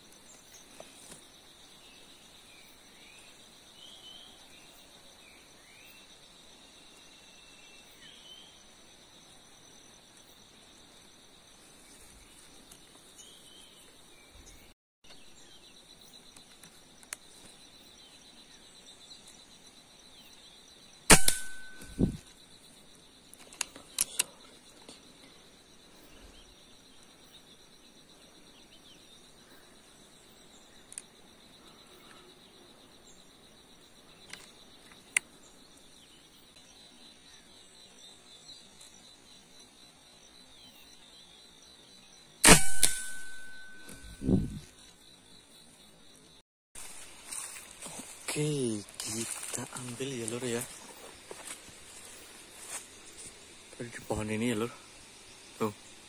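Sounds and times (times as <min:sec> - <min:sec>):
insects buzzing: 0:00.0 - 0:56.0
air rifle shot: 0:21.1 - 0:22.2, 0:42.4 - 0:44.0.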